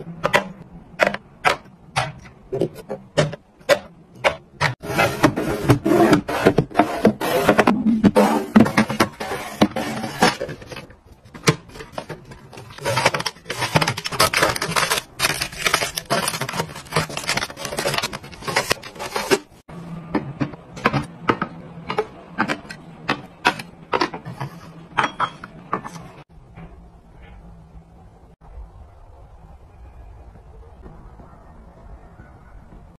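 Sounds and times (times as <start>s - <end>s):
plastic bins clicking and tapping: 0.0s - 26.2s.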